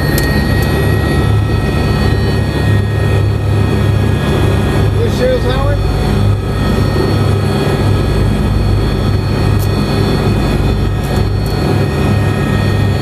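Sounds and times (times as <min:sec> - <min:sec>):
helicopter turbine whine: 0:00.0 - 0:13.0
rotor throb: 0:00.0 - 0:13.0.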